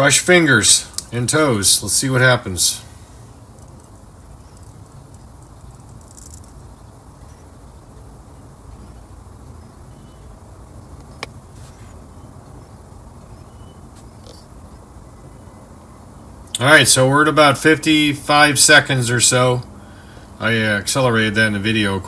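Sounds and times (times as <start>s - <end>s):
workshop low rumble: 0.0s - 6.0s.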